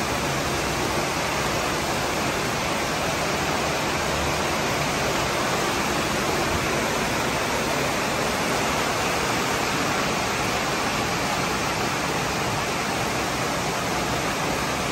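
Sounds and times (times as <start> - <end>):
heavy rain pouring: 0.0 - 14.9.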